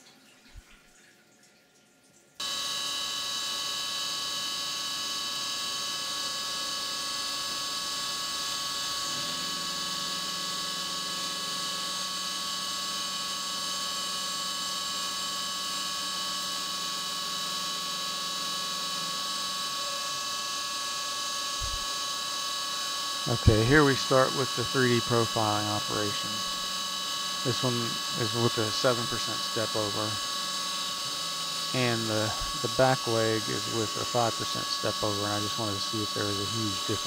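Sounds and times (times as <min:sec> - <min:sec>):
milling machine spindle tones: 0:02.4 - 0:37.0
coolant spraying: 0:23.3 - 0:37.0.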